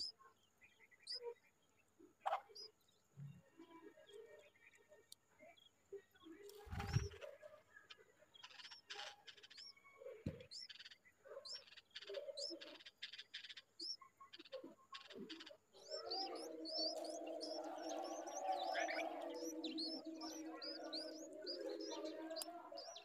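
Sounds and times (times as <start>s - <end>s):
low continuous bird warbling: 0.0s - 23.0s
nestlings begging chirps: 11.4s - 23.0s.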